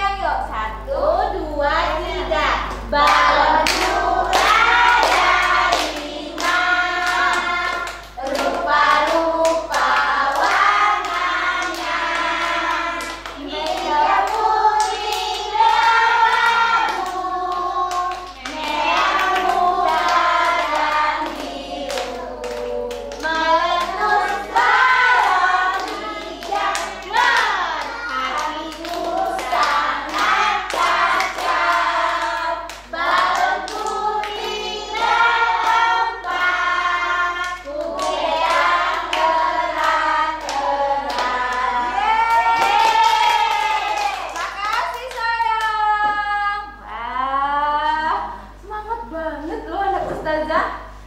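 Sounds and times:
women and child singing: 0.8s - 50.5s.

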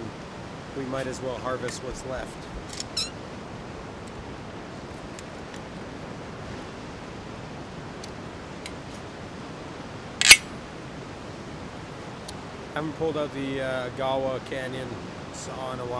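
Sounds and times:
rushing water hiss: 0.0s - 15.9s
sharp metallic snap: 10.2s - 10.6s.

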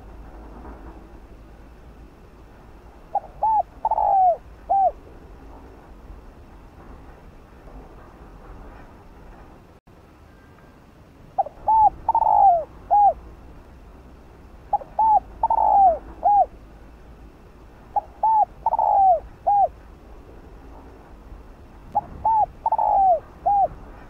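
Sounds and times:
dove cooing: 3.1s - 5.0s, 11.4s - 13.2s, 14.7s - 16.6s, 17.9s - 19.8s, 22.0s - 23.9s.

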